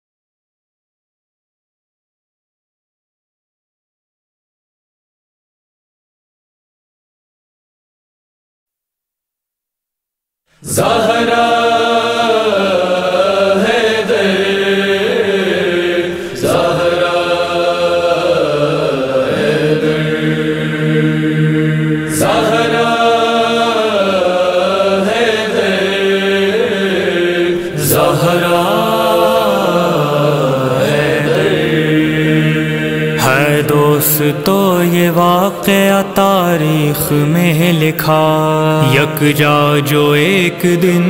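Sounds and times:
low vocal drone: 10.6s - 41.0s
male chorus chanting: 10.6s - 41.0s.

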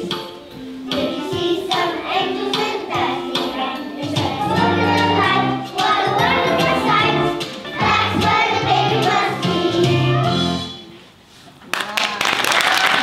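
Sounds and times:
children's choir singing: 0.9s - 10.6s.

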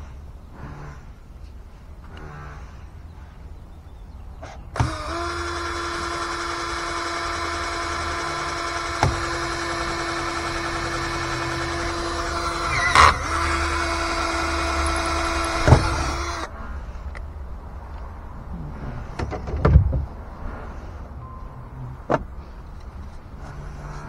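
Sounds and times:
cordless drill whining: 4.8s - 16.5s.

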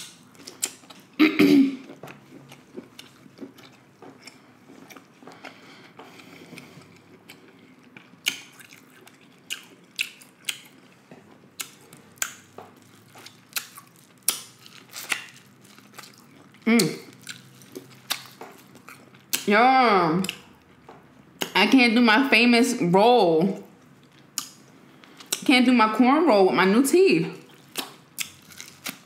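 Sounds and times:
person chewing food: 0.0s - 19.5s, 23.6s - 25.4s, 27.4s - 29.0s
wet mouth clicks and smacks: 27.7s - 29.0s.

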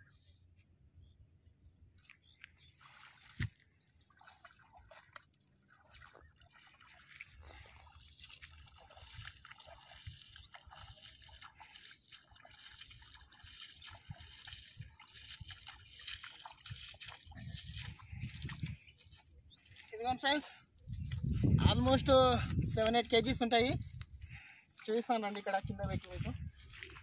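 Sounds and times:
water sloshing and dripping: 2.0s - 20.0s
footsteps splashing through water: 2.0s - 27.0s.

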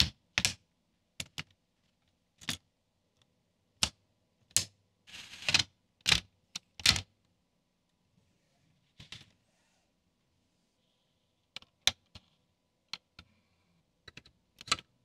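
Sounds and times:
plastic parts clicking together: 14.0s - 14.9s.

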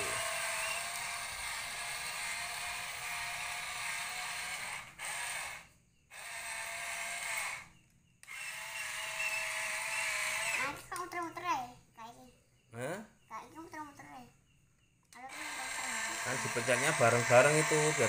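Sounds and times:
toy excavator motors whirring: 0.0s - 11.4s, 15.1s - 18.0s.

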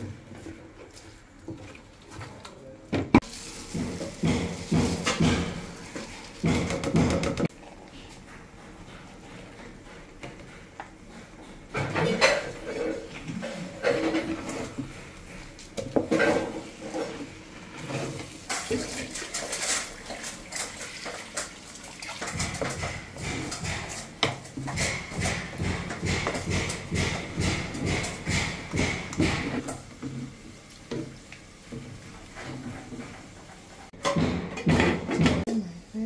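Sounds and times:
rice rustling and sloshing: 3.2s - 6.5s, 12.6s - 24.7s
wooden spatula scraping metal pot: 11.7s - 30.5s.

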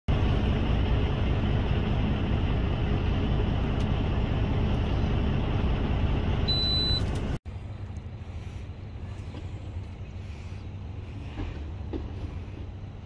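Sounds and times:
train rumbling past: 7.5s - 13.0s.

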